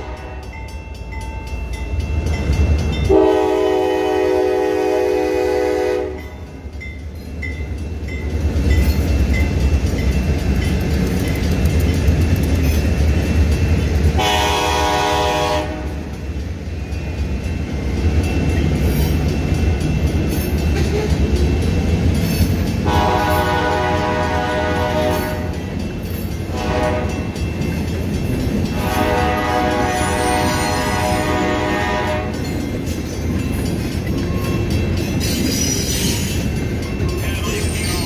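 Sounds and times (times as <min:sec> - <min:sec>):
locomotive air horn: 0:00.0 - 0:00.6, 0:03.1 - 0:06.4, 0:14.2 - 0:16.0, 0:22.8 - 0:25.5, 0:26.5 - 0:27.2, 0:28.7 - 0:32.4
freight train rumbling past: 0:00.0 - 0:38.0.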